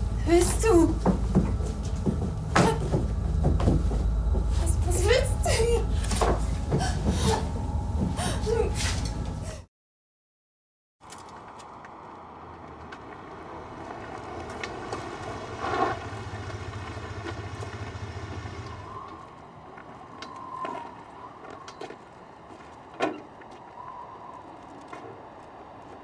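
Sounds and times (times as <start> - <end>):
short knocks: 0.4 - 4.8
small car engine running: 12.7 - 19.2.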